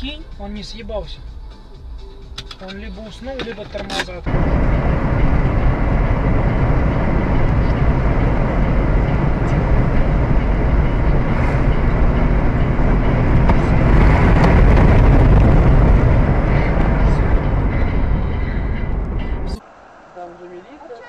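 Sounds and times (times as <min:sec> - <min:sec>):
car road and engine rumble: 0:00.0 - 0:21.0.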